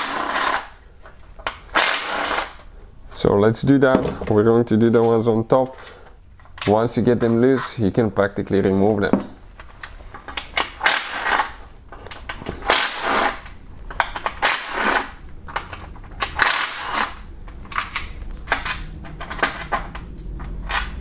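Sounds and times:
hand ratchet clicking: 16.2 - 17.1.

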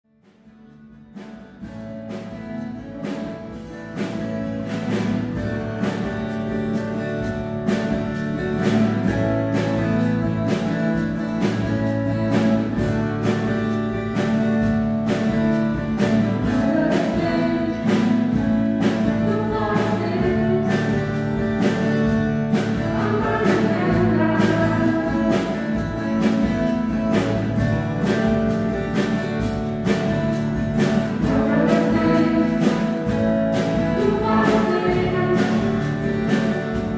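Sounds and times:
band playing worship song: 1.6 - 36.9
singing voices: 16.5 - 18.2, 19.2 - 21.1, 22.8 - 25.9, 31.2 - 36.5.

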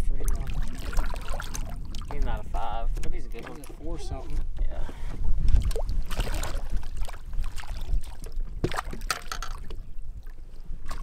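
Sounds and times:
fish splashing at the surface: 0.3 - 2.1, 5.6 - 9.8.

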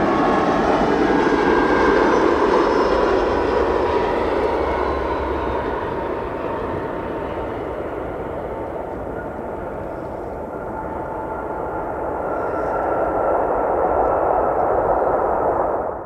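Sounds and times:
jet engines rushing: 0.0 - 16.0.

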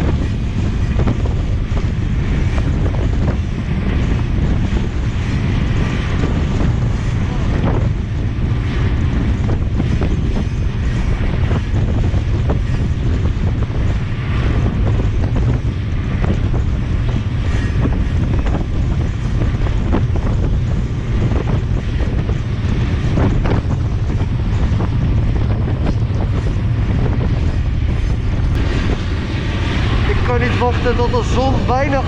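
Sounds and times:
train rumbling along rails: 0.0 - 32.0
wind buffeting microphone: 0.0 - 32.0.

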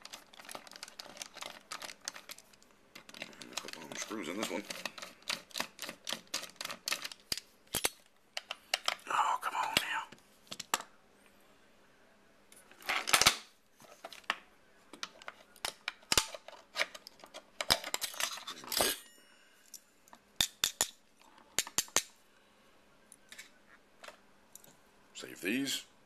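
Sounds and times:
metal parts clicking and clinking: 0.0 - 9.0.

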